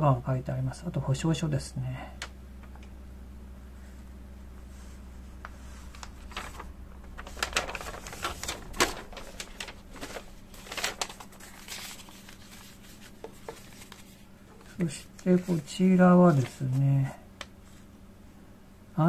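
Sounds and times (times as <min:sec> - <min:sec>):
paper leaflet rustling and crinkling: 0:04.7 - 0:17.9.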